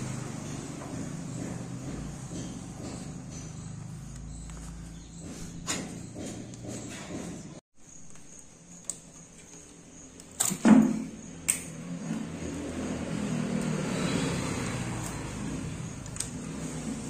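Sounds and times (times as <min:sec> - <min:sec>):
hoses and connectors clicking: 0:08.0 - 0:10.8, 0:11.4 - 0:11.8, 0:15.9 - 0:16.4.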